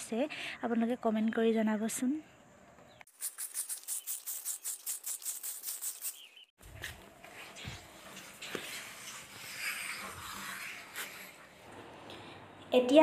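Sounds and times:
high-pitched insect chirping: 3.1 - 6.3.

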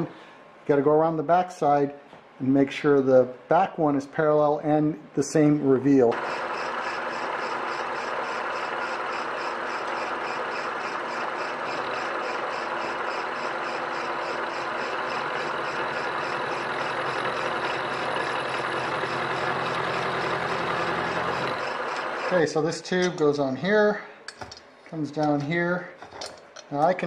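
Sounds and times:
milling machine motor hum: 6.1 - 22.4
end mill cutting steel: 6.1 - 23.2.

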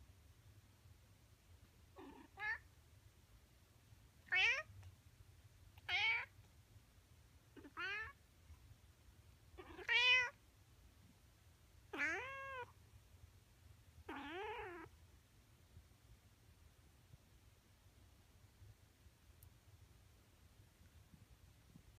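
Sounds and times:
cat meowing: 2.0 - 2.6, 4.2 - 4.7, 5.8 - 6.3, 7.6 - 8.2, 9.6 - 10.4, 11.9 - 12.7, 14.1 - 14.9.

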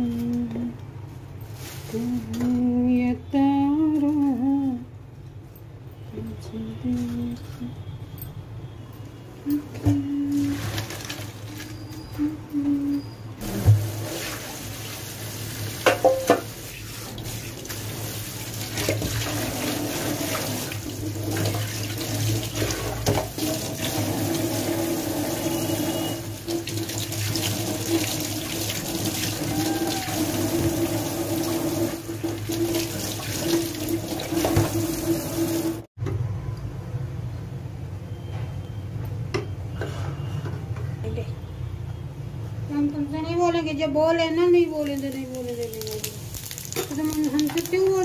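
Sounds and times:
tap water running onto pasta: 13.4 - 35.9, 44.9 - 48.0.

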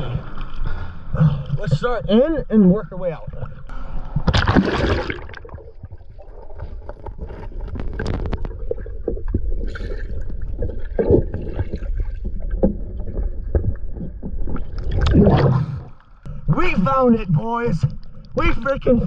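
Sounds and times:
big water splash: 4.2 - 5.8
small knocks and scrapes: 6.6 - 8.7.

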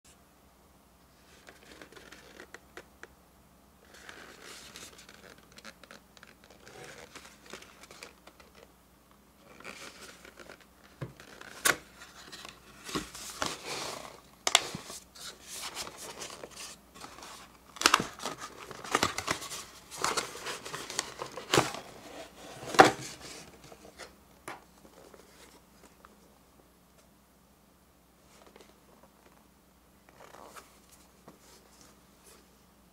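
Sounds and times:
cardboard flaps scraping and rustling: 9.5 - 24.1.

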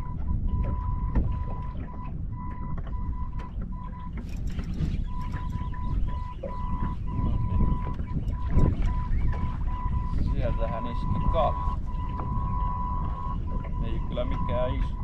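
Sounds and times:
heavy low rumble: 0.0 - 15.0
wind buffeting microphone: 0.0 - 15.0
thin electronic beep tone: 5.0 - 15.0.

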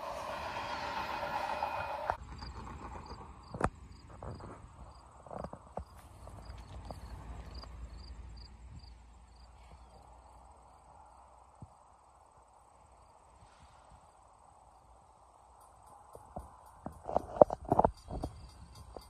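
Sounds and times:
insect chirping: 0.0 - 13.3, 14.4 - 19.0
low wind rumble: 0.0 - 19.0.

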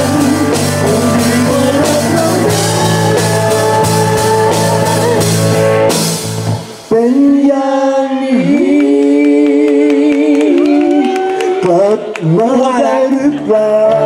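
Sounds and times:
person singing long notes: 0.0 - 5.6, 6.9 - 14.0
rock band playing: 0.0 - 7.2.

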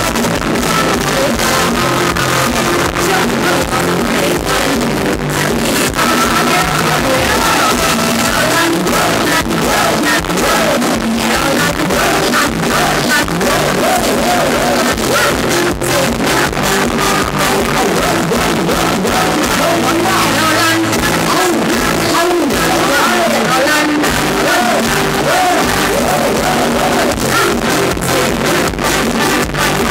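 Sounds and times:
steady drum beat: 0.0 - 23.4
live band music: 0.0 - 29.9
man singing: 0.0 - 29.9.

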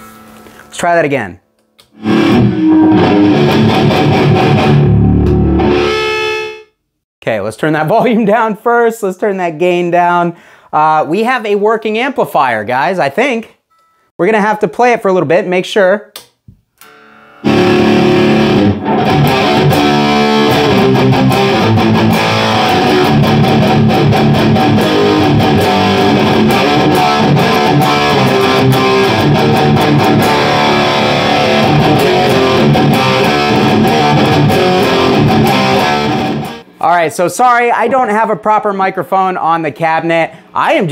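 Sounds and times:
electric guitar through amp: 1.9 - 6.6, 16.8 - 36.7.

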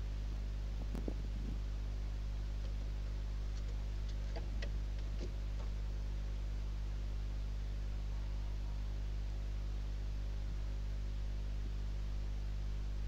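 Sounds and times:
low electrical hum: 0.0 - 13.0
owls tapping on wooden nest box: 3.5 - 5.8.

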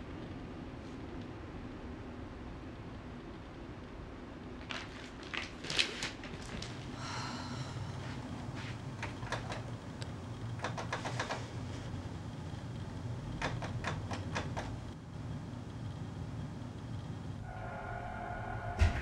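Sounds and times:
low hum: 6.9 - 10.6, 14.8 - 19.0
keyboard typing clicks: 13.4 - 14.8.

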